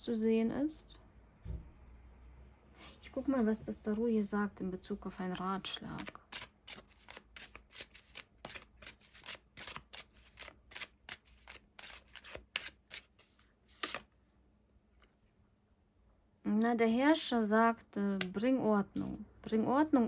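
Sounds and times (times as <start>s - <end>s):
cards being shuffled: 5.3s - 14.2s.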